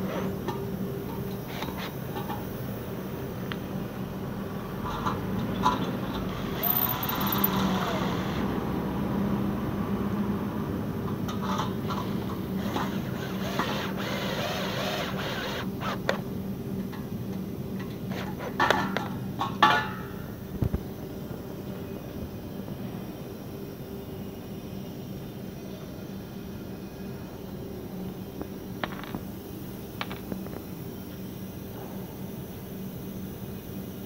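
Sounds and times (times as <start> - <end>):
metal clinks: 6.6 - 7.6.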